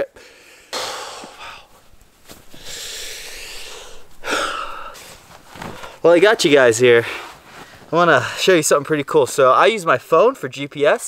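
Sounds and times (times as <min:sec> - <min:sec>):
breathing close to microphone: 0:00.2 - 0:06.0
cloth rustling: 0:01.6 - 0:09.5.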